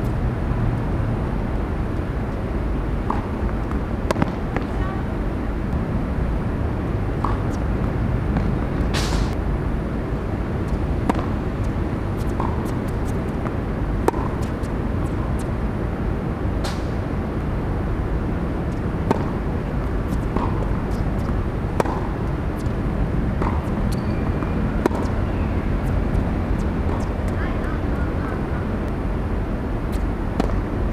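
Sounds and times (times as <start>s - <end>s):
steady low rumble: 0.0s - 30.9s
tennis ball struck by racket: 3.0s - 4.7s, 7.2s - 9.4s, 10.7s - 11.4s, 12.2s - 15.5s, 16.6s - 17.0s, 18.7s - 27.4s, 29.9s - 30.7s.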